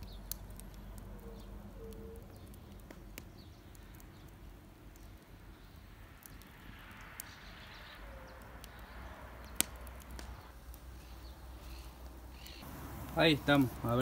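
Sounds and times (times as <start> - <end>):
campfire crackling: 0.0 - 14.0
sharp pops: 9.5 - 10.8.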